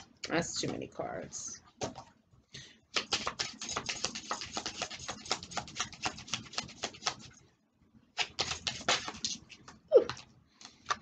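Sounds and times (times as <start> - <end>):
cards being shuffled: 3.0 - 7.3, 8.2 - 11.0.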